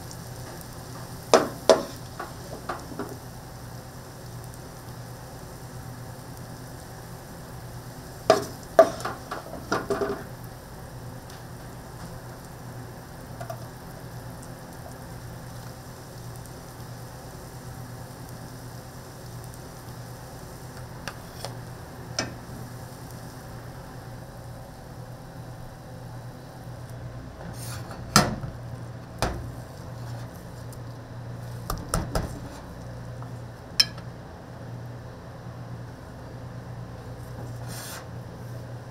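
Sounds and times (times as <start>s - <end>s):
food sizzling in a pan: 0.0s - 26.8s
utensil clanking against pan: 1.3s - 3.1s, 8.3s - 10.3s, 33.8s - 34.0s.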